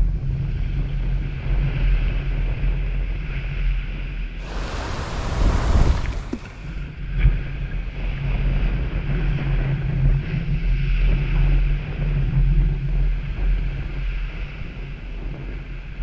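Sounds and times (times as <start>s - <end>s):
small waves breaking on sand: 4.4s - 7.0s
wind buffeting microphone: 4.4s - 7.2s.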